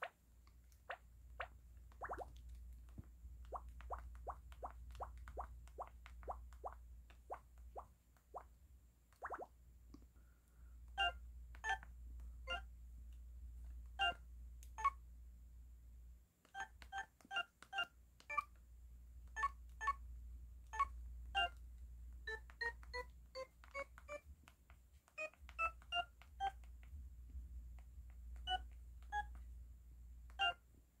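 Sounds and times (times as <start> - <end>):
phone keypad beeps: 11.0 - 11.8, 12.5 - 12.7, 16.5 - 18.5, 22.3 - 24.2, 25.2 - 26.6, 28.4 - 29.4, 30.3 - 30.6.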